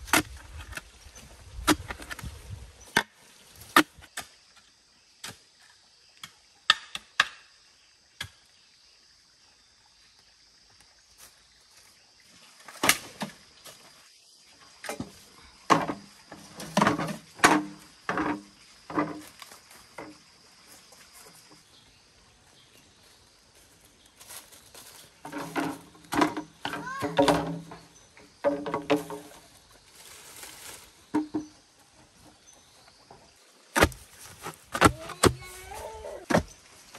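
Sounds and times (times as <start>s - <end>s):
axe chopping wood: 33.8s - 35.6s, 36.3s - 36.6s.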